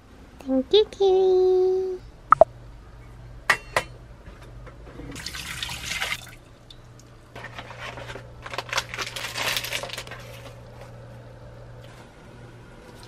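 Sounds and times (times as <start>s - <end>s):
water pouring into metal pot: 5.2s - 6.4s.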